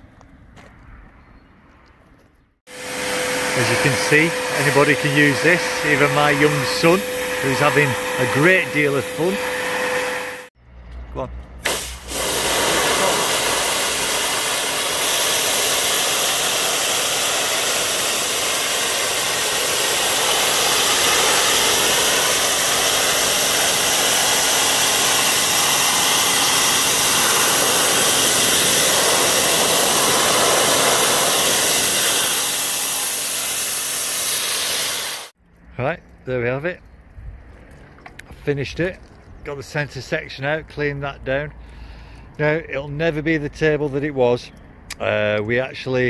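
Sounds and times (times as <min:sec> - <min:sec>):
motor hum: 0:02.7 - 0:10.5
pressure washer jet hissing: 0:02.7 - 0:10.5, 0:11.6 - 0:35.4.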